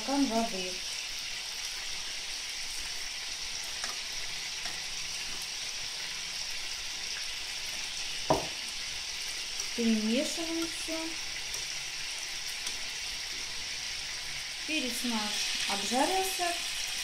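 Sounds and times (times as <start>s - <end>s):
peppers sizzling in oil: 0.0s - 17.0s
knock: 8.3s - 8.6s.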